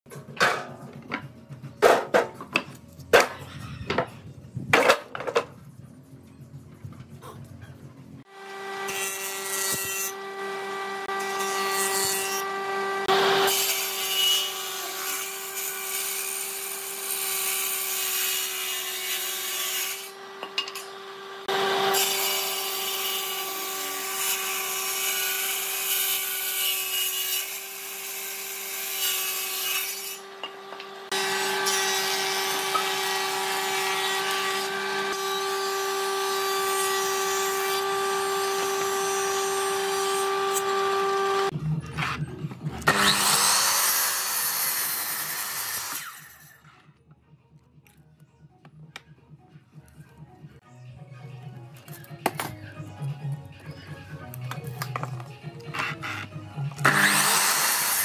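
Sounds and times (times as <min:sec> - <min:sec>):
woodworking machines cutting wood: 0:08.3 - 0:46.6, 0:54.5 - 0:58.0.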